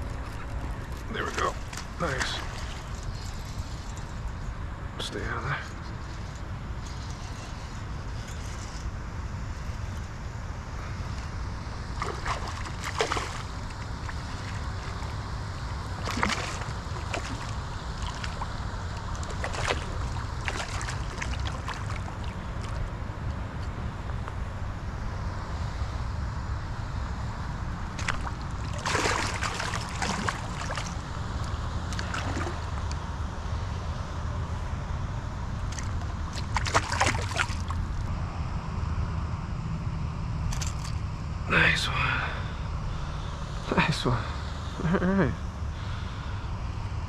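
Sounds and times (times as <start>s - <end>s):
fish thrashing and splashing: 11.9s - 22.8s, 28.0s - 31.2s, 31.9s - 32.8s, 35.6s - 37.9s, 40.5s - 41.0s.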